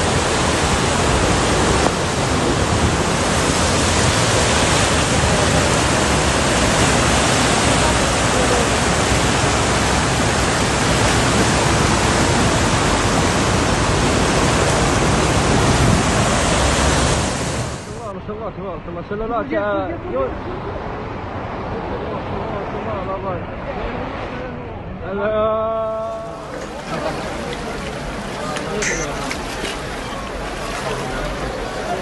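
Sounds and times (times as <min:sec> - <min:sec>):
floodwater rushing: 0:00.0 - 0:18.1, 0:25.7 - 0:32.0.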